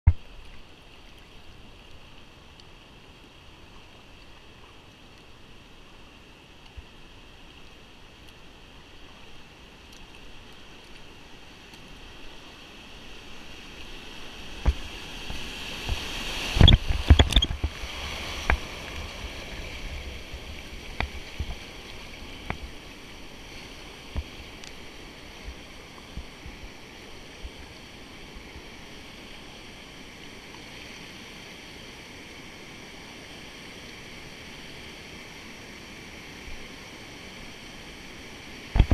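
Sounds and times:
rushing river whitewater: 0.2s - 38.9s
paddle splashes: 8.9s - 26.7s
kayak splashes and knocks: 14.5s - 22.8s.

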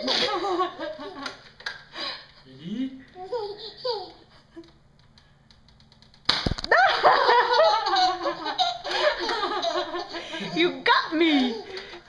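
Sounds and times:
sharp smack: 6.3s - 6.7s.

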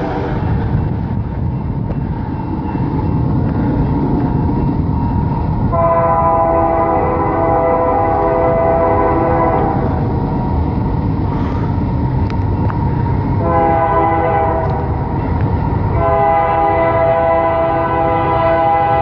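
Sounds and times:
steady low rumble: 0.0s - 16.1s
locomotive air horn blasts: 5.7s - 10.0s, 13.4s - 14.8s, 15.9s - 19.0s.

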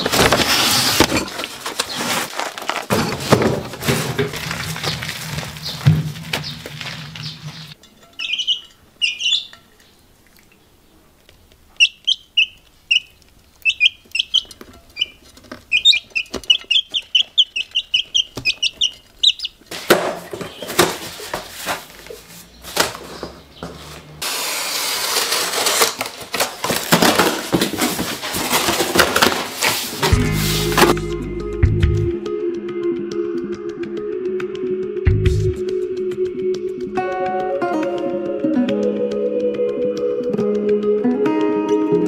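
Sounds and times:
cardboard rustling and tearing: 0.0s - 7.7s, 19.7s - 31.1s
chicks peeping: 4.8s - 10.0s, 11.7s - 19.7s.

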